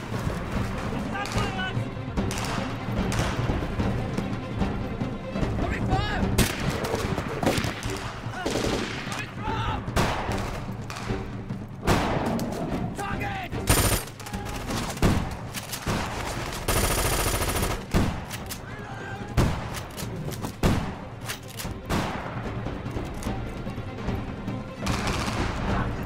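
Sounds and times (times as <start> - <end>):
people shouting: 8.2 - 10.0, 14.2 - 14.9, 18.6 - 19.4
automatic gunfire: 13.7 - 14.2, 15.0 - 18.2.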